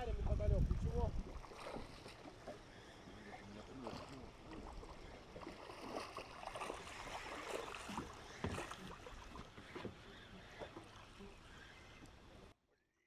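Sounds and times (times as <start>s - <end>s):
water lapping against boat hull: 0.3s - 12.5s
small knocks on boat: 7.9s - 10.9s.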